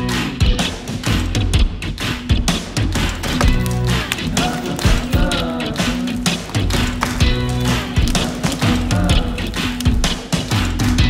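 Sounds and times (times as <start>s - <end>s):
background music with drum beat: 0.0s - 11.0s.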